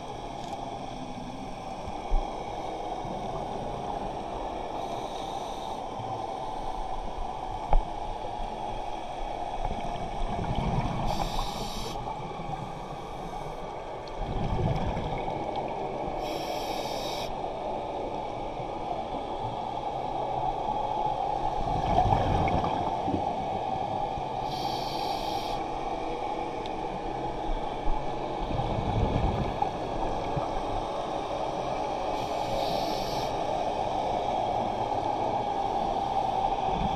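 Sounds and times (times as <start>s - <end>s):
muffled underwater noise: 9.5s - 36.9s
exhaled bubbles rumbling: 9.6s - 11.3s, 14.2s - 16.0s, 21.5s - 23.4s, 28.3s - 30.6s
regulator hiss on inhalation: 11.1s - 12.0s, 16.2s - 17.3s, 24.4s - 25.7s, 32.2s - 33.5s.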